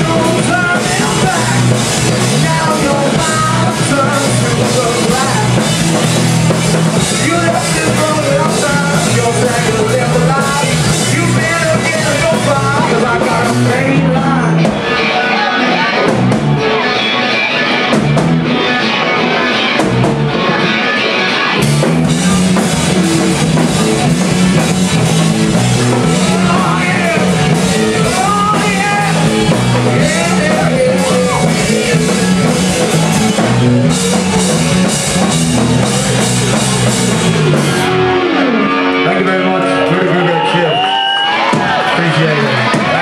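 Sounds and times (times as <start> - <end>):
man singing: 0.0 - 5.8, 7.1 - 15.9, 26.0 - 33.1
live rock band playing: 0.0 - 43.0.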